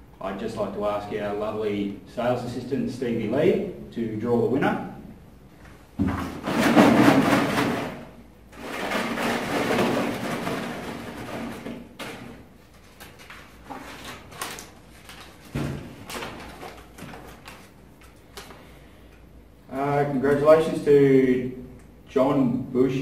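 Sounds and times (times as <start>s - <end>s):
paper rustling in plastic tub: 8.6s - 18.6s.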